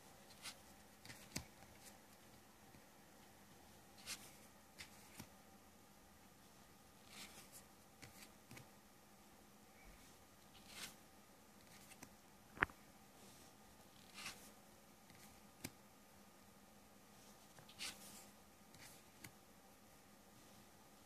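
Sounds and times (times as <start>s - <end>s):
paper cards swishing and tapping: 0.2s - 2.8s, 4.0s - 5.4s, 10.6s - 11.0s, 11.6s - 12.7s, 17.3s - 19.4s.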